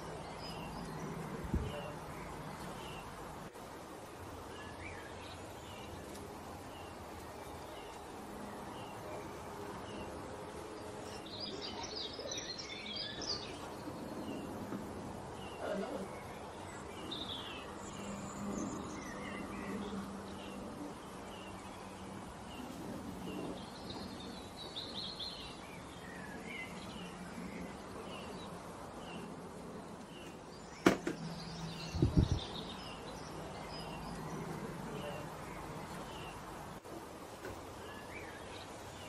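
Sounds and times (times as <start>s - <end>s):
small birds chirping: 0.0s - 39.0s
quick run of knocks: 30.8s - 31.2s.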